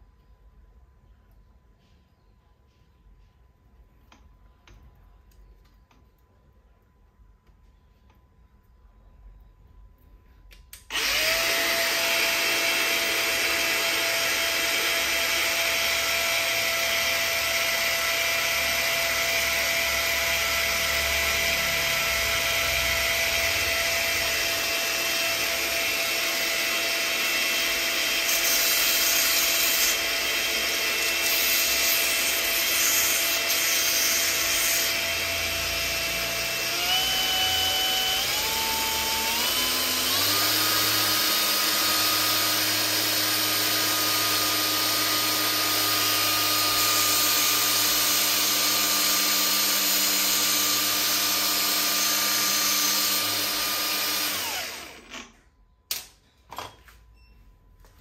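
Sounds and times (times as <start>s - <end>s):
belt sander motor whine: 10.9s - 31.3s, 33.2s - 55.3s.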